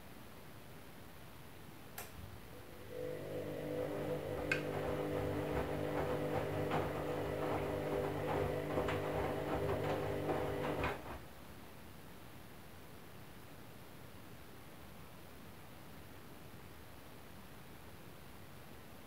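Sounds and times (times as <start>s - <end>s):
washing machine motor hum: 2.2s - 11.2s
wet laundry tumbling clicks: 2.9s - 11.2s.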